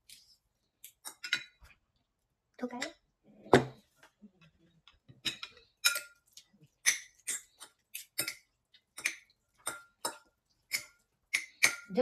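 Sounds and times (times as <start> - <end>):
metal utensils clinking on dishes: 5.2 - 6.2, 6.8 - 12.0.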